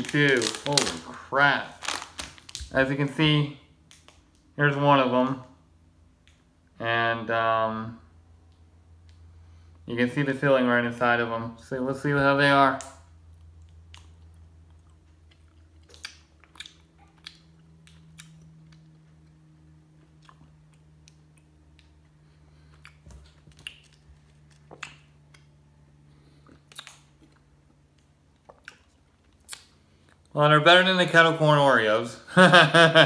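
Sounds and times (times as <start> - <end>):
faint low hum: 0.0 - 33.0
mouth chewing candy: 13.3 - 25.5.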